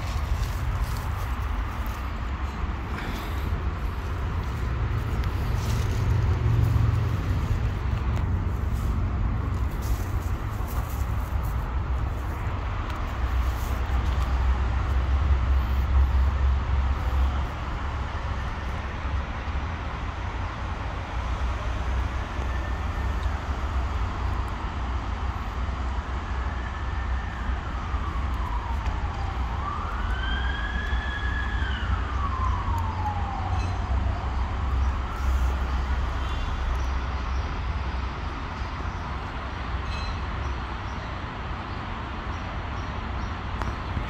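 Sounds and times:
siren wailing: 26.4s - 35.7s.

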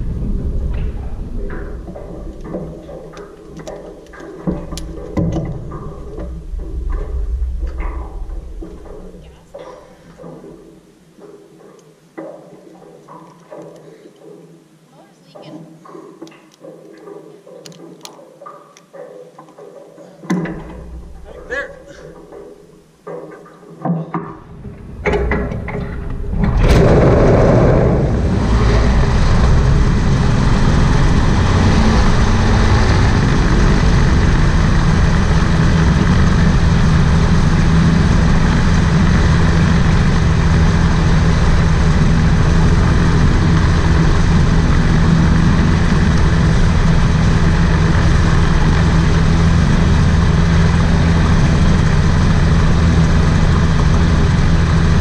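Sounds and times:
two-stroke engine running loudly: 25.2s - 55.0s.

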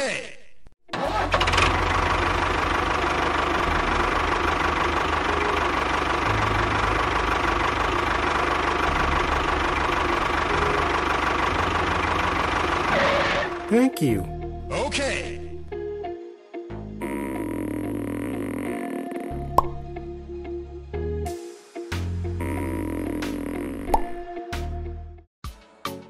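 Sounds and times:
small machine chugging and whining: 1.0s - 13.7s, 17.0s - 19.1s.

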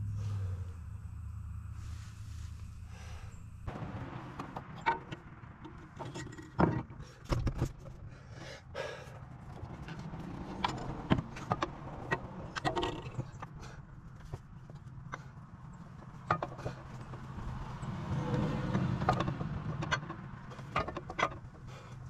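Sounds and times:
metal clinks and knocks of axle: 3.6s - 8.0s, 9.4s - 22.0s.

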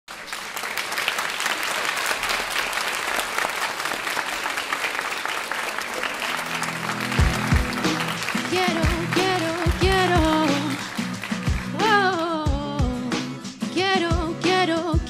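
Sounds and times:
audience applauding: 0.1s - 12.4s
backing-track music: 6.2s - 15.0s.

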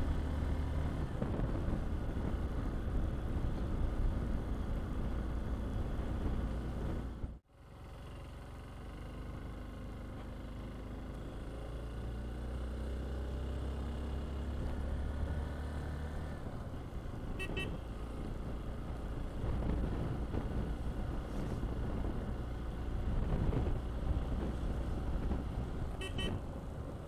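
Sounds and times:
road and wind noise: 0.0s - 27.0s
vehicle engine running: 0.0s - 27.0s
double horn beep: 17.4s - 17.8s, 26.0s - 26.4s.

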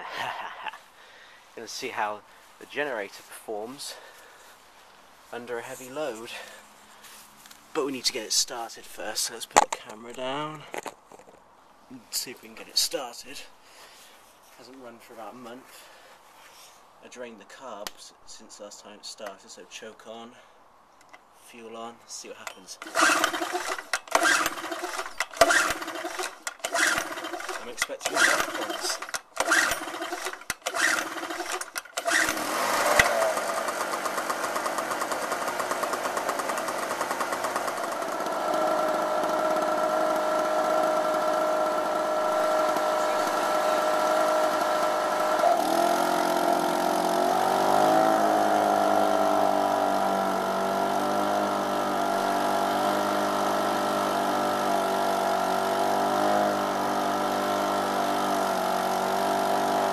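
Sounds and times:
starter rope pulls: 22.4s - 59.9s
generator engine running: 22.8s - 59.9s.

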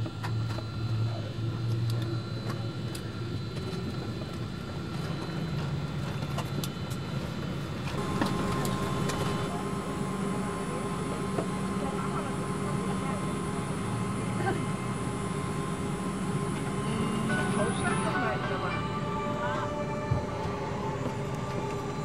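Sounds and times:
airliner cabin noise: 0.0s - 22.0s
steady high tone: 15.2s - 22.0s.

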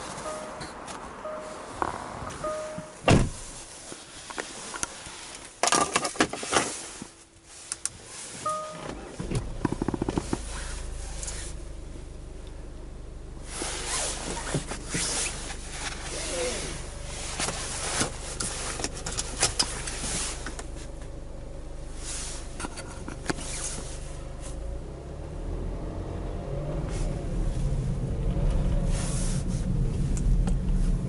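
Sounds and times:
diesel engine starting and idling: 0.0s - 3.8s, 8.4s - 31.0s.

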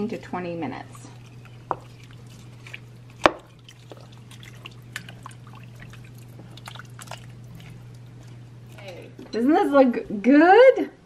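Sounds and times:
liquid dripping and lapping: 0.0s - 9.4s
spoon knocking pot: 1.6s - 2.0s, 3.2s - 3.5s.

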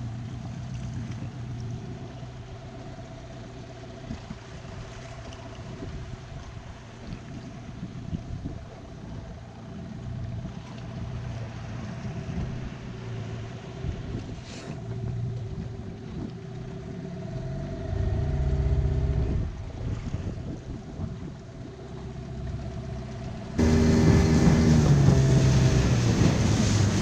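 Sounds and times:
outboard motor humming: 0.0s - 27.0s
water rushing: 21.7s - 27.0s.

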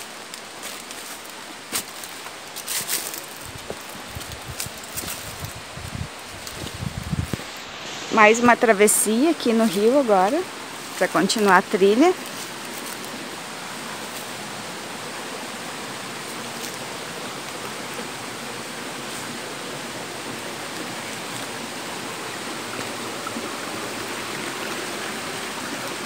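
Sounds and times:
stream running over boulders: 0.0s - 26.0s.

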